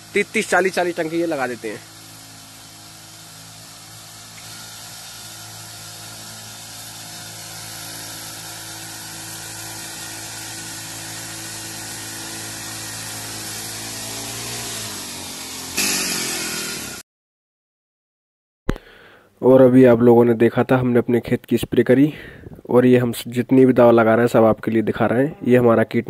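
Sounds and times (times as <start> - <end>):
spray hissing: 0.0 - 14.6
small petrol engine running: 0.0 - 17.0.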